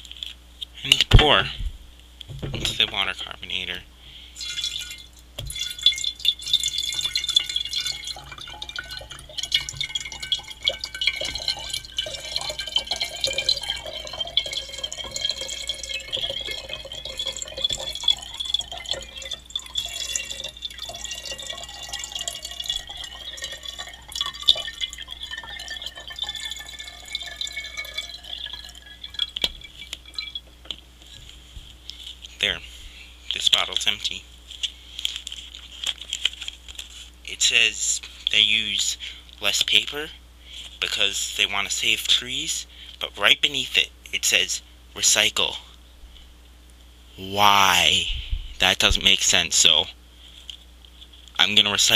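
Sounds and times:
water pouring from bottle: 0:04.4 - 0:30.4.

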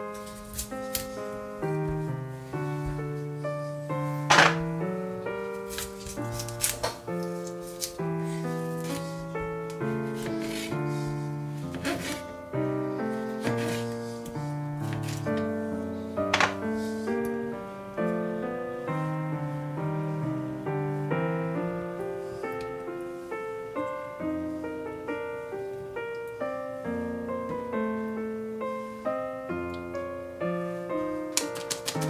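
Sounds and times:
piano music: 0:00.0 - 0:32.0.

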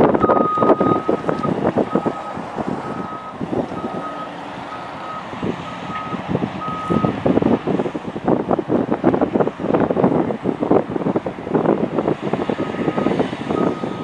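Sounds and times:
heavy diesel machinery rumble: 0:00.0 - 0:14.0
back-up alarm beeping: 0:00.2 - 0:05.3, 0:05.9 - 0:07.1.

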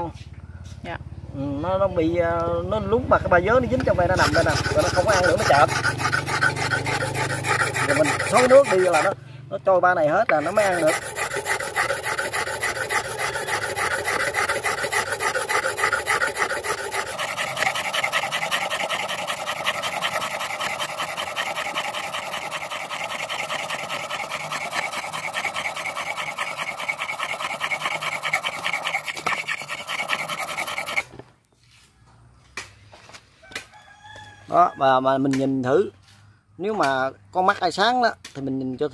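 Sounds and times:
blade grinding on wet brick: 0:03.5 - 0:09.2, 0:10.0 - 0:31.2.

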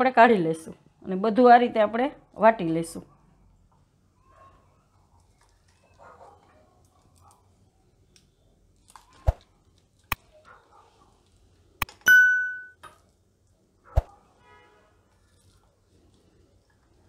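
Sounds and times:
bright bell ding: 0:12.1 - 0:12.8.

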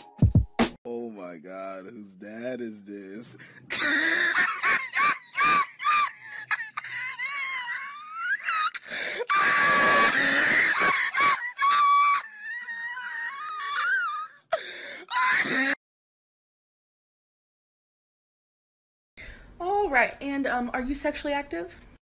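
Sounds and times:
man laughing hysterically: 0:03.7 - 0:14.3.

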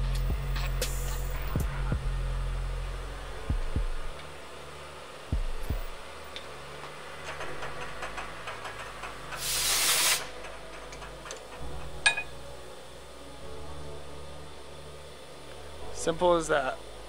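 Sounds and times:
scattered knocks: 0:06.8 - 0:09.4
loud burst of hiss: 0:09.4 - 0:10.4.

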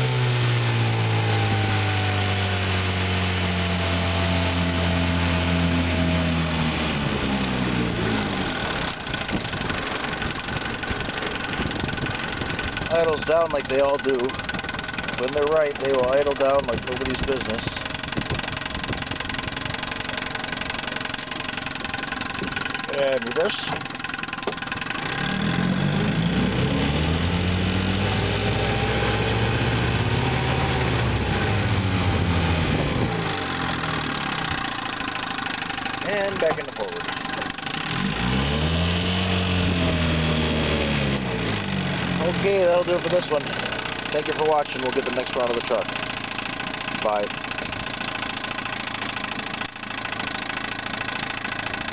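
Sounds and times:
outboard motor throttling down: 0:00.0 - 0:51.9.

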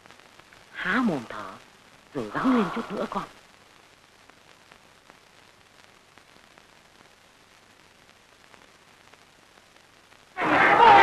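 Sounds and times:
faint crackles: 0:00.0 - 0:11.0
old film soundtrack hiss: 0:00.0 - 0:11.0.

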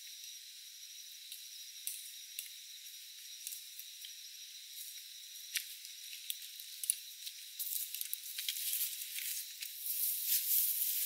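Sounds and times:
footsteps rustling through grass: 0:08.7 - 0:11.0.

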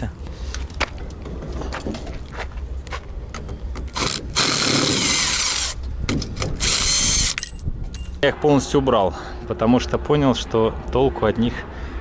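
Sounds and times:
cordless impact driver running: 0:03.9 - 0:05.8, 0:06.5 - 0:07.5.

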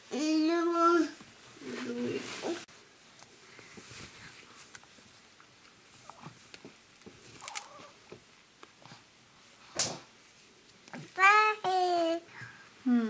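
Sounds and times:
clothing rustling: 0:01.4 - 0:02.8, 0:03.4 - 0:06.5.

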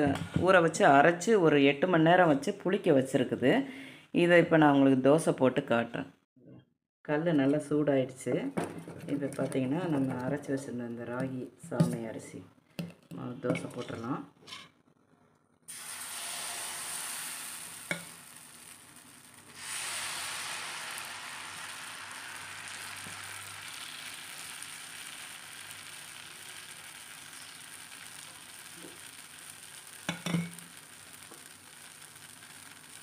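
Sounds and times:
batter sizzling on griddle: 0:15.7 - 0:33.0.

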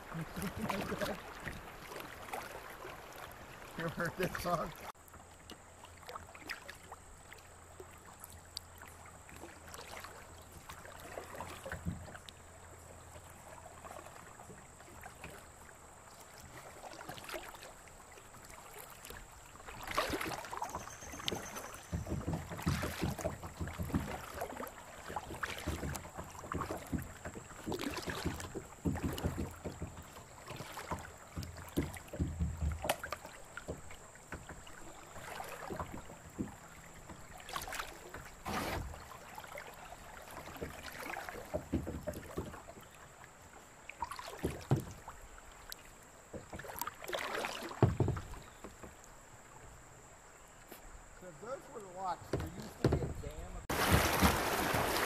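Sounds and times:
paddle splashing in water: 0:00.0 - 0:55.0
low knocks: 0:52.3 - 0:54.4.

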